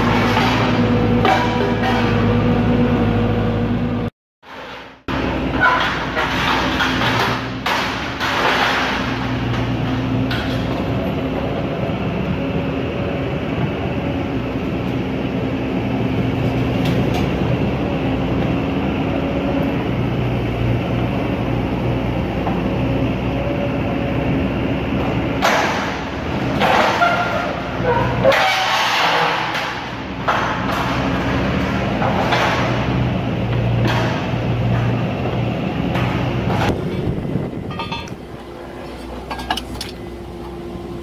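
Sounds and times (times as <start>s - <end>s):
excavator engine and hydraulics droning: 0.0s - 41.0s
metal clattering: 36.5s - 38.3s.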